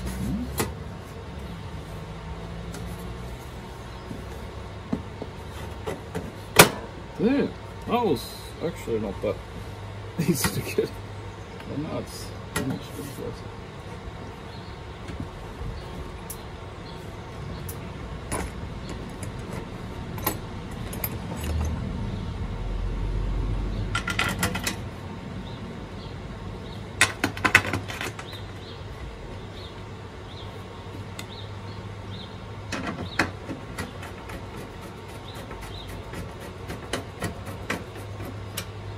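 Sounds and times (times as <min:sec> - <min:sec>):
small metal parts clinking: 0:18.3 - 0:21.8.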